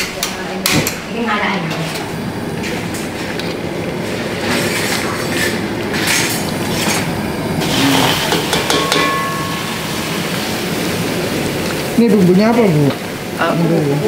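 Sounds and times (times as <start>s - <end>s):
gas burner flames roaring: 0.0s - 14.0s
metal ladle clinking on pans: 8.3s - 10.2s.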